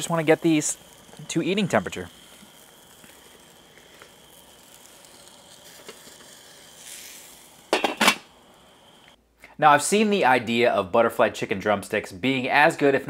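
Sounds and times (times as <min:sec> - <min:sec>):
meat sizzling on grill: 0:00.0 - 0:09.2.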